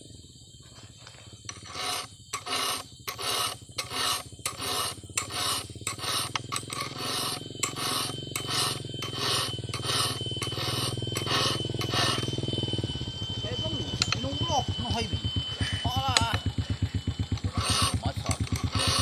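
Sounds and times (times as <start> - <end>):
file rasping on chainsaw chain: 1.5 - 12.4, 13.9 - 19.0.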